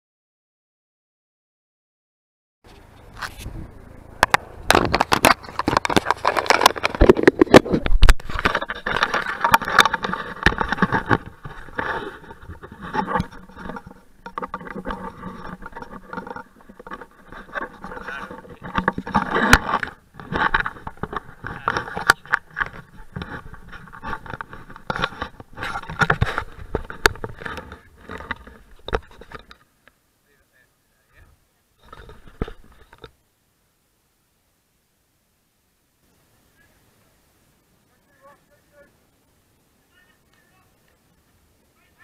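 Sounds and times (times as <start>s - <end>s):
hand scraping and rubbing camera: 2.7s - 29.7s, 31.8s - 33.2s
sharp clicks and knocks: 4.2s - 30.0s.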